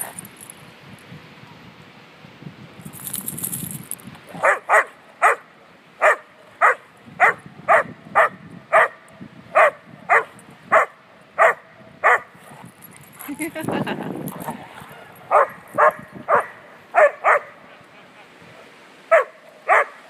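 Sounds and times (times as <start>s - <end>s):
dog barking: 4.4s - 9.0s, 9.6s - 12.3s, 15.3s - 17.6s, 19.1s - 20.0s.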